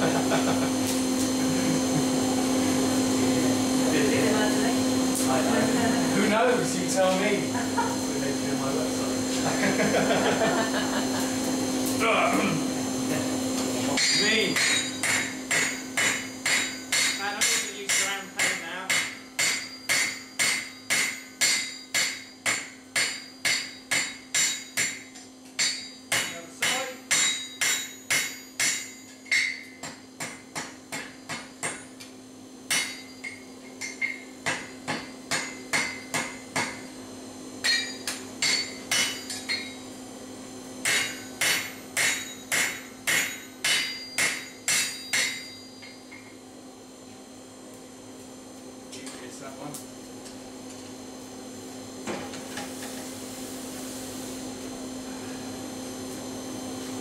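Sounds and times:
steady hum: 0.0s - 57.0s
hammer striking metal on anvil: 14.0s - 32.1s, 32.7s - 36.9s, 37.6s - 39.8s, 40.8s - 46.3s.

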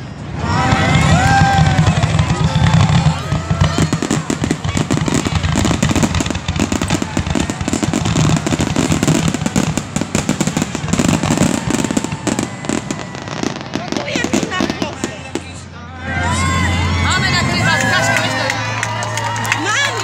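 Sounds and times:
fireworks bursting and crackling: 0.0s - 15.8s.

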